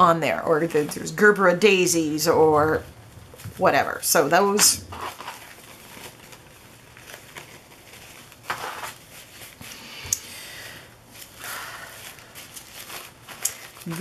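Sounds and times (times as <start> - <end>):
paper napkins rustling: 0.0 - 10.0, 10.6 - 14.0.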